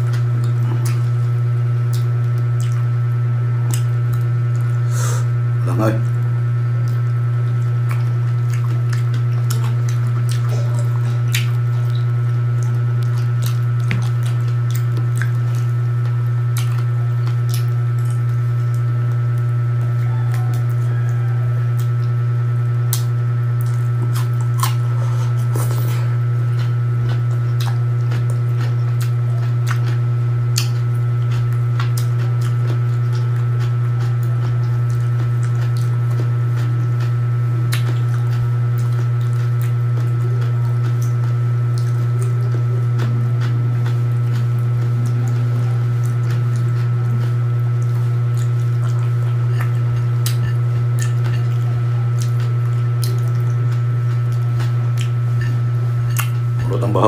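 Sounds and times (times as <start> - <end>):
loud steady low hum: 0.0 - 57.0
wet chewing sounds: 0.0 - 57.0.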